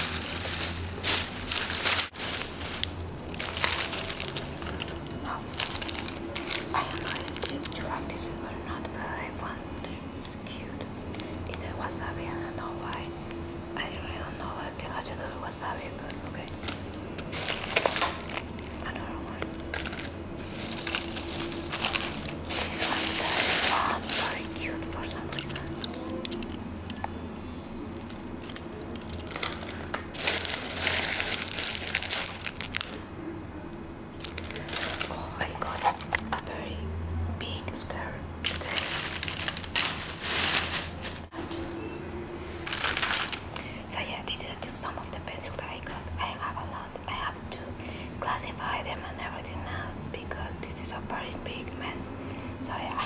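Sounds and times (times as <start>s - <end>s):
plastic bag crinkling: 0.0s - 8.4s, 16.5s - 27.0s, 27.9s - 33.0s, 34.2s - 36.4s, 38.4s - 43.6s.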